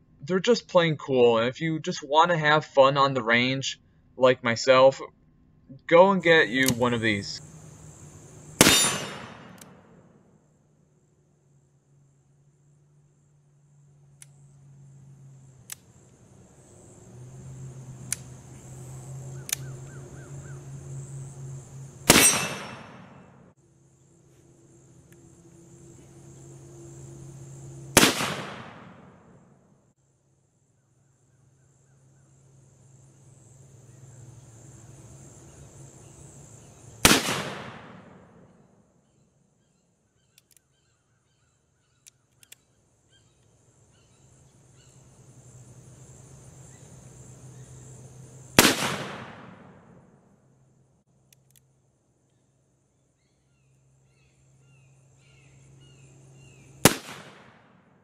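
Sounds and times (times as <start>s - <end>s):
revolver shots echoing: 8.6s - 10.0s, 22.1s - 23.2s, 28.0s - 29.2s, 37.0s - 38.2s, 48.6s - 49.8s, 56.8s - 57.6s.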